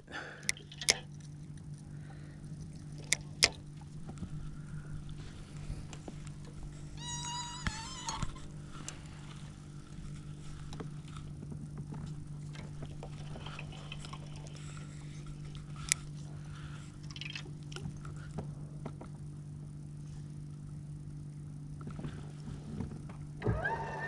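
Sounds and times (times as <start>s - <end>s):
low boat hum: 0.0s - 24.0s
fishing reel clicks and rustles: 0.4s - 1.9s, 5.8s - 18.3s.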